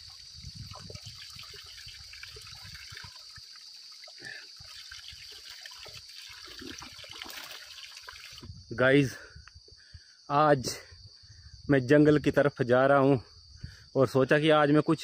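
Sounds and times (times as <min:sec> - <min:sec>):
water trickling and splashing: 0:00.0 - 0:08.6.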